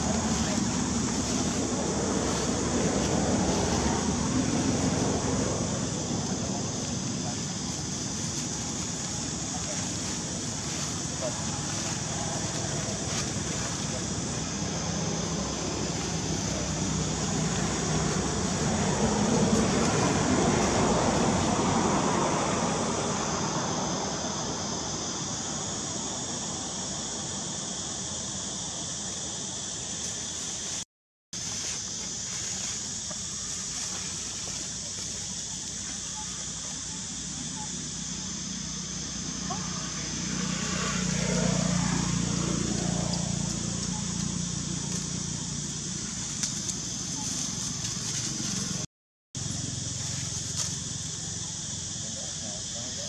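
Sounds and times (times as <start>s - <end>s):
distant passing vehicle engine: 0.0s - 24.9s, 36.2s - 53.0s
steady high hiss: 0.0s - 30.8s, 31.4s - 53.0s.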